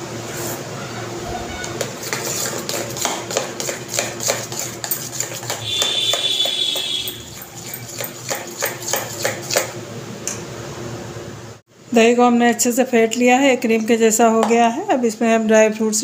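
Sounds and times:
metal whisk scraping steel bowl: 1.8s - 9.7s.

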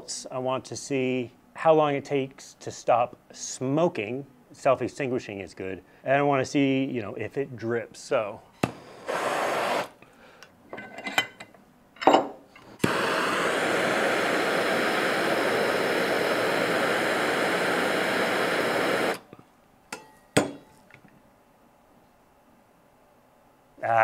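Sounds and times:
torch flame hissing: 8.6s - 10.0s, 12.8s - 19.3s
torch lighting click: 12.8s - 19.2s.

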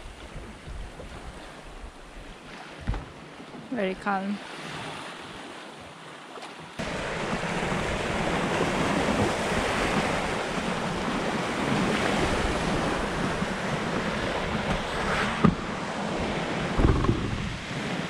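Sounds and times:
sea rushing along hull: 0.0s - 18.0s
wind buffeting microphone: 6.8s - 18.0s.

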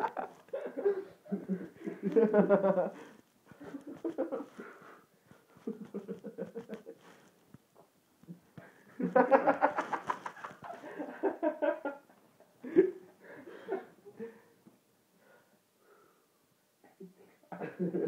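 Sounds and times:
people laughing hard: 0.0s - 4.6s, 5.6s - 7.2s, 9.0s - 14.2s.

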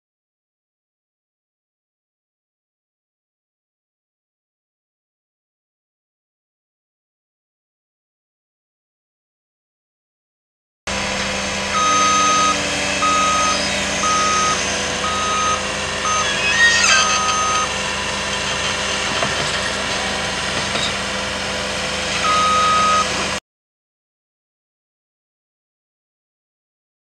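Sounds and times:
truck backup alarm beeping: 10.9s - 21.5s, 22.2s - 23.4s
truck engine running: 10.9s - 23.4s.

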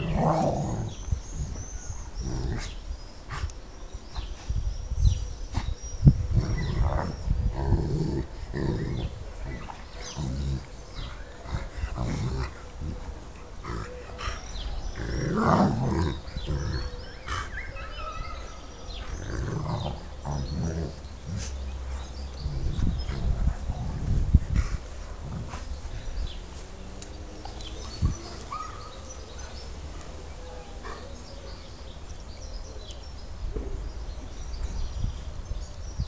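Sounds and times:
dogs play growling: 0.0s - 3.5s, 6.1s - 29.6s.

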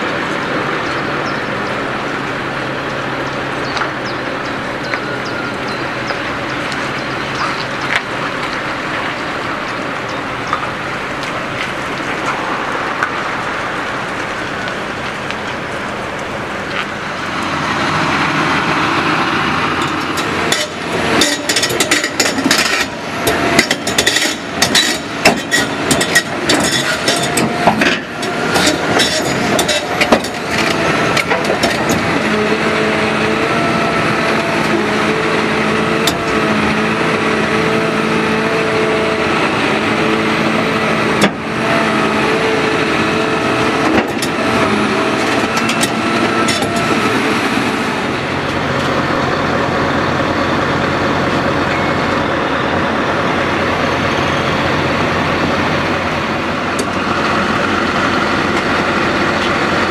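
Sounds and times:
diesel engine with high whine: 0.0s - 59.9s
metallic clanks and knocks: 19.8s - 32.1s.

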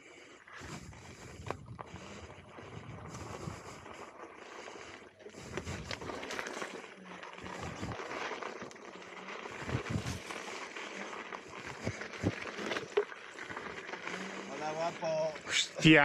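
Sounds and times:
tyre crunching over rocky ground: 5.2s - 15.8s.

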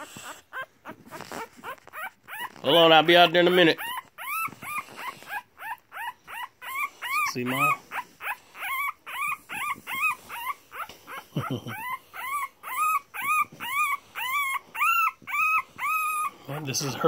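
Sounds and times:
puppy crying: 0.0s - 17.0s.

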